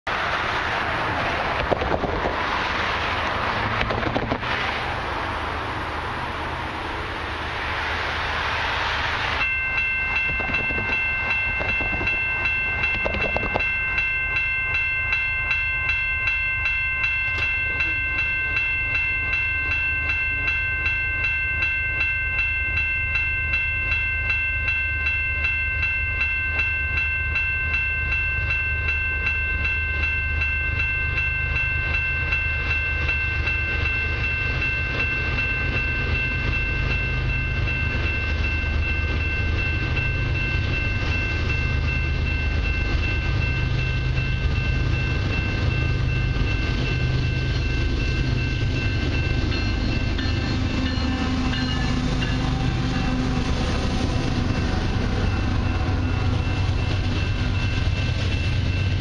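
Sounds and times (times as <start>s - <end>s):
low train rumble: 0.0s - 59.0s
loud rushing noise: 0.1s - 10.7s
railway crossing bell ringing: 0.1s - 59.0s.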